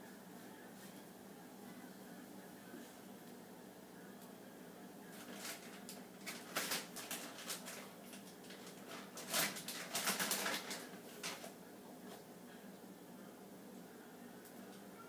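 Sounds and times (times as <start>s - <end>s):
packages rustling and knocking: 5.2s - 11.6s.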